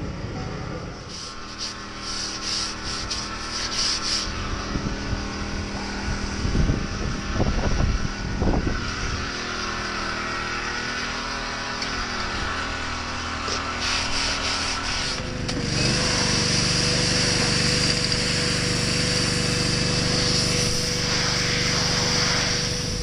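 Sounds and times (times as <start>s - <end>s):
generator humming: 0.0s - 23.0s
brush scrubbing a tyre: 1.1s - 4.8s, 13.4s - 17.7s, 18.8s - 23.0s.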